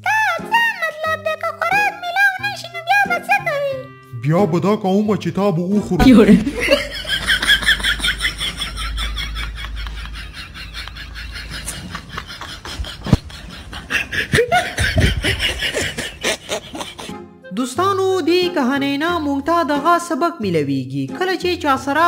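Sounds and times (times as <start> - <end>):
high-pitched laughter: 6.0 - 17.1.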